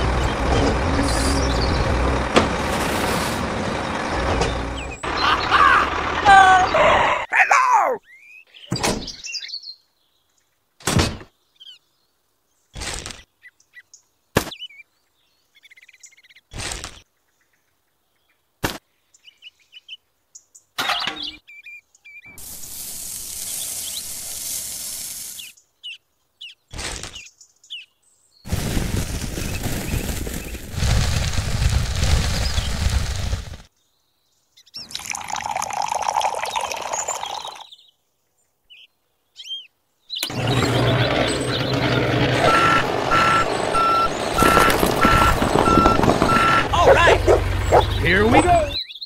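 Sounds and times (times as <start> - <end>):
sand pouring into metal can: 22.4 - 25.5
water pouring into can: 34.9 - 37.6
small objects set down: 44.4 - 46.4.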